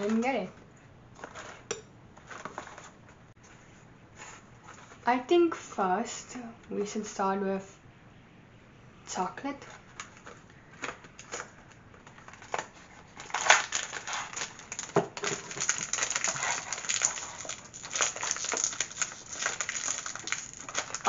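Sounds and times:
snack packaging crinkling: 11.2s - 21.0s.

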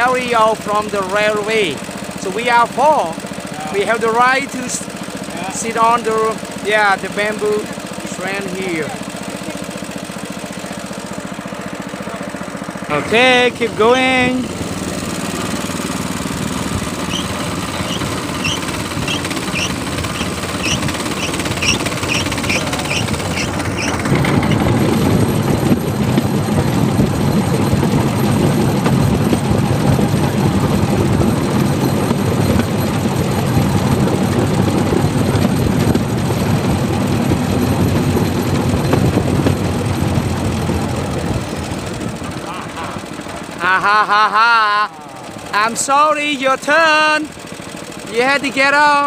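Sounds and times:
small rail vehicle engine: 0.0s - 49.0s
wheels clattering over track: 14.2s - 43.7s
short high chirps: 17.0s - 23.9s.

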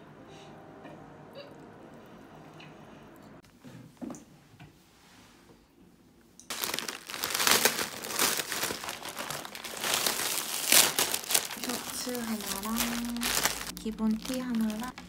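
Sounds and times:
plastic packaging crinkling: 6.5s - 15.0s.

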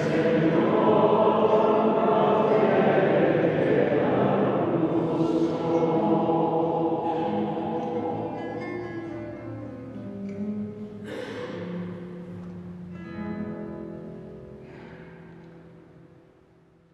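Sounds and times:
church choir singing: 0.0s - 9.6s.

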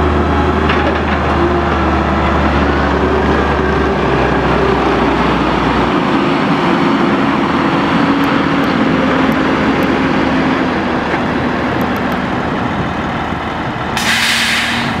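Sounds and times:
truck engine and hydraulics: 0.0s - 15.0s
short burst of hiss: 14.0s - 15.0s.

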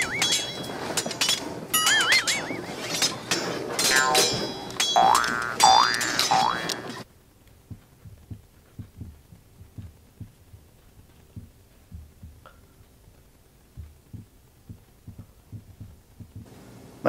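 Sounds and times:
brief squeak: 0.0s - 0.6s, 1.8s - 3.3s
cartoon boing: 5.0s - 6.8s
soft low thumps: 7.1s - 16.5s.

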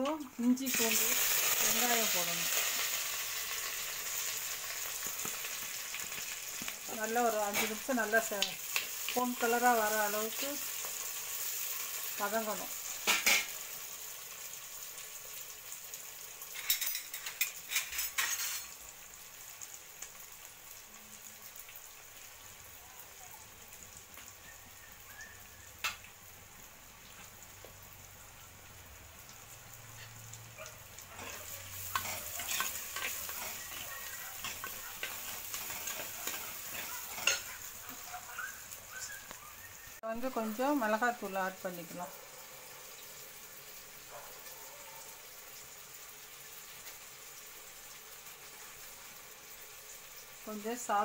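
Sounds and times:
onions sizzling in hot oil: 0.0s - 51.0s
ladle scraping a pot: 16.6s - 18.7s, 31.2s - 37.5s.

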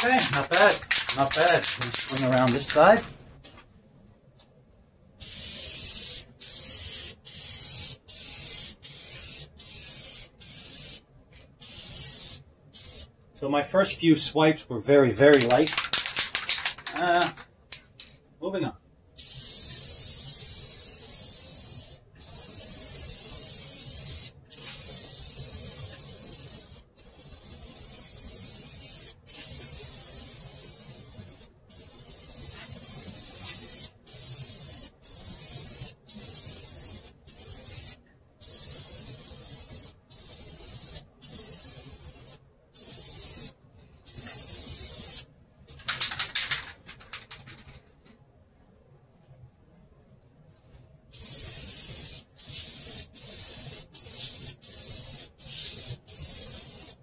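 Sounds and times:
spray can rattling when shaken: 0.0s - 3.1s, 5.2s - 13.1s, 15.2s - 18.2s, 19.2s - 47.9s, 51.2s - 57.0s
aerosol can spraying: 5.2s - 11.0s, 11.6s - 13.1s, 15.4s - 17.4s, 19.2s - 45.3s, 51.2s - 57.0s.

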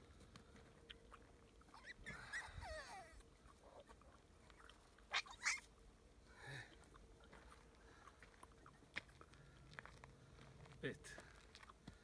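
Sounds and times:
puppies whimpering: 1.6s - 3.9s, 4.6s - 5.7s
puppy short sharp cries: 5.1s - 5.6s.

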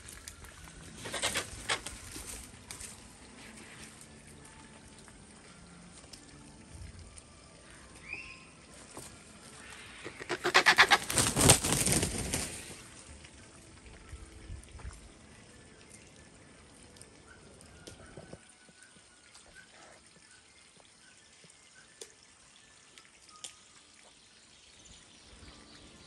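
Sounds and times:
heavy wing flapping: 10.3s - 12.9s.

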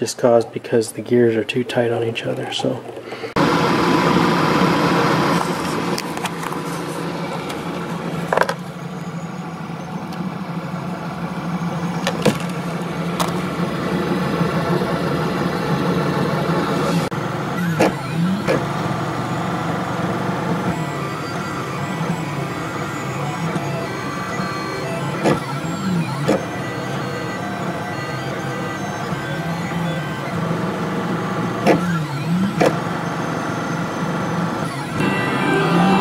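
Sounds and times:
stepper motors humming and whining: 1.8s - 36.0s.

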